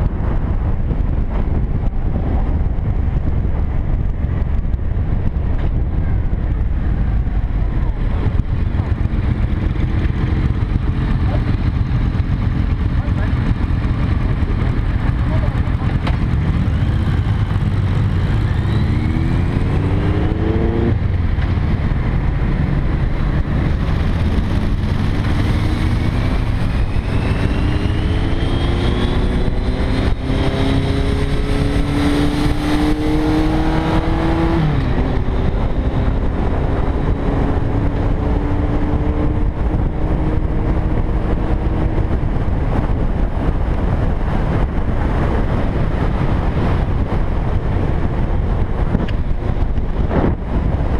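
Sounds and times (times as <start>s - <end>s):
motorcycle engine accelerating: 0.0s - 50.9s
wind rumble on microphone: 0.0s - 50.9s.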